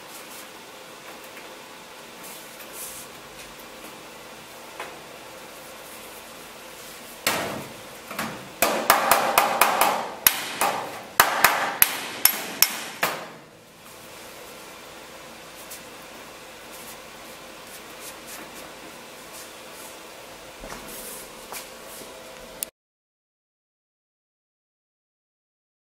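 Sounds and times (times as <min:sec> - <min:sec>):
hammer striking sheet metal: 0:07.2 - 0:07.8, 0:08.6 - 0:13.5.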